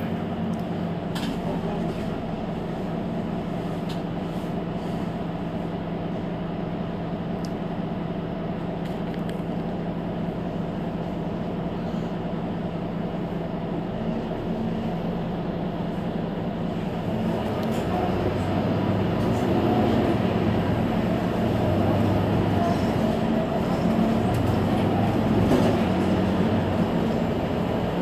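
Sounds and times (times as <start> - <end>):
bus engine droning: 0.0 - 28.0.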